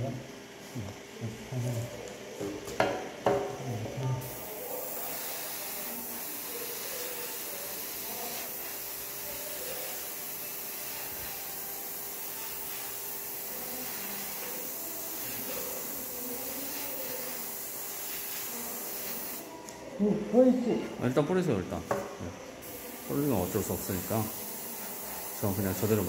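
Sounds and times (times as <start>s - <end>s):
airbrush spraying hiss: 4.2s - 19.4s, 22.6s - 26.0s.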